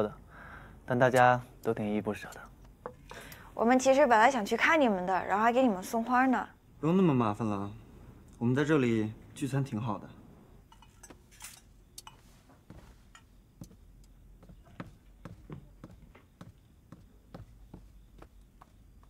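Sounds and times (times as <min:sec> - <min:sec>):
clinks of plates and cutlery: 0:10.7 - 0:12.3.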